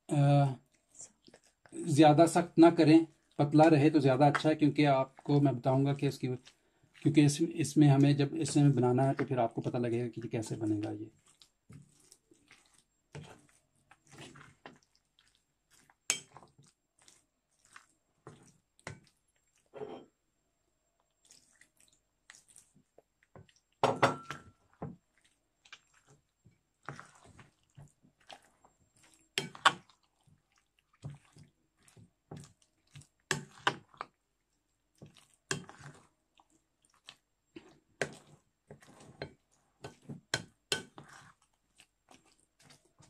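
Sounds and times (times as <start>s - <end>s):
wet batter squelches: 0.0s - 19.8s, 20.7s - 43.0s.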